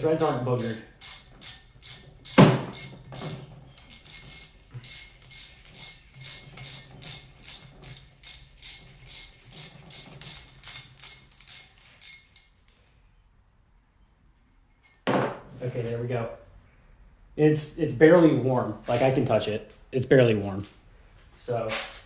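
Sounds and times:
hand ratchet clicking: 0:00.0 - 0:12.6
loud knock: 0:02.4 - 0:02.8, 0:15.1 - 0:15.5.

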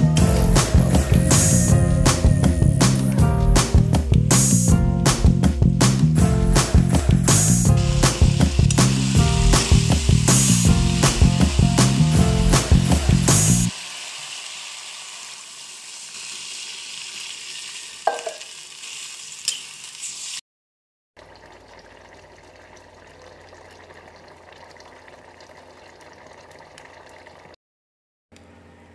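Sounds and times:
greens sizzling in a wok: 0:07.8 - 0:12.1, 0:12.8 - 0:20.4
quiet simmering sizzle: 0:13.7 - 0:20.4, 0:21.2 - 0:27.5.

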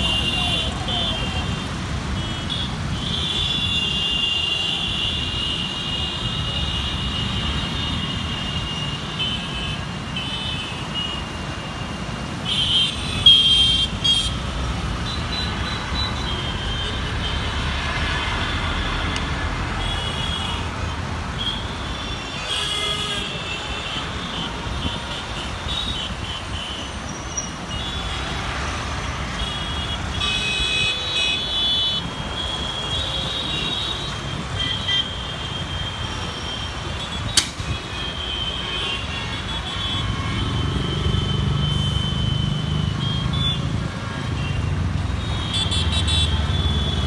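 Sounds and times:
traffic engine rumble: 0:00.0 - 0:47.0
vehicle horns honking: 0:21.4 - 0:28.5, 0:29.2 - 0:43.7, 0:44.4 - 0:47.0.

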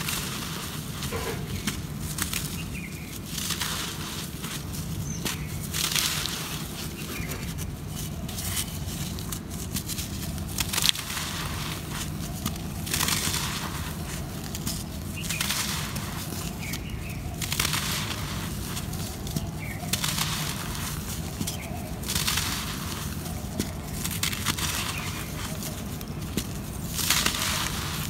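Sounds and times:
dirt crumbling in hands: 0:00.0 - 0:28.0
loose earth pouring: 0:00.0 - 0:28.0.

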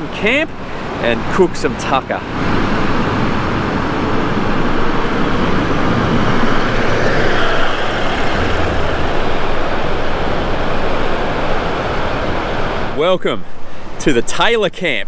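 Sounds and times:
vehicle driving on sand: 0:00.0 - 0:13.1.

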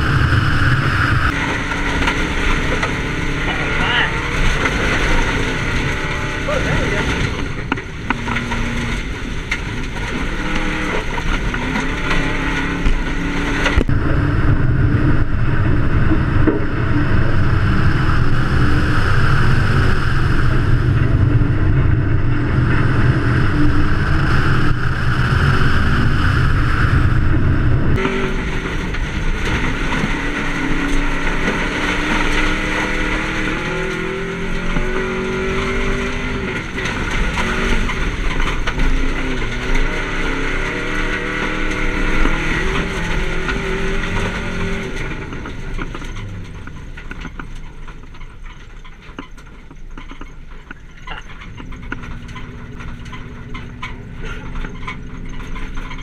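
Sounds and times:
rally car engine accelerating: 0:00.0 - 0:56.0.

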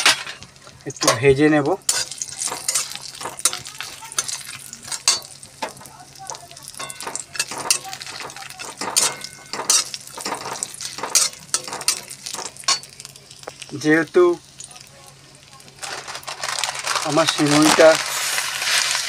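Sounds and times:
frying sizzle: 0:00.0 - 0:19.0
metal spatula scraping in a pan: 0:01.0 - 0:05.9, 0:06.8 - 0:13.0, 0:18.0 - 0:19.0.

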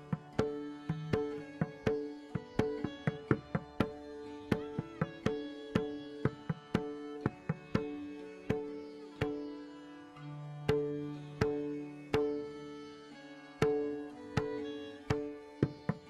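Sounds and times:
hand drum strokes: 0:00.0 - 0:09.4, 0:13.6 - 0:16.0
violin drone: 0:00.0 - 0:16.0.

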